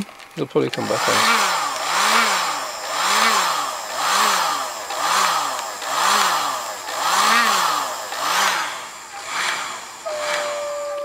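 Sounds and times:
heat gun blowing: 0.7s - 11.0s.

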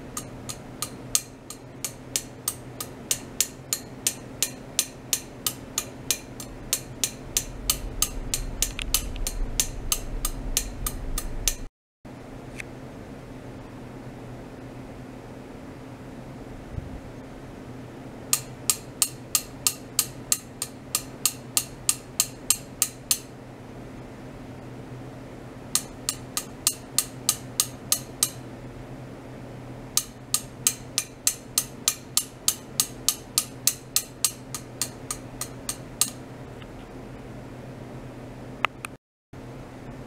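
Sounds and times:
low electrical hum: 0.0s - 40.0s
sharp clicks: 5.1s - 11.7s.

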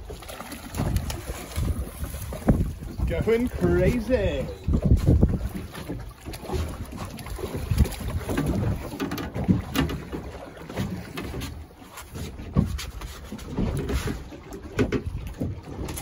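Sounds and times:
water lapping against boat hull: 0.0s - 16.0s
wind on microphone: 0.6s - 9.7s.

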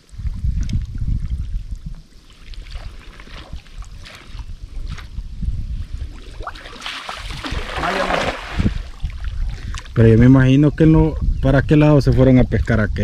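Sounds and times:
low rumble on the microphone: 0.0s - 6.5s
water sloshing and splashing: 1.2s - 5.2s, 6.0s - 10.0s.

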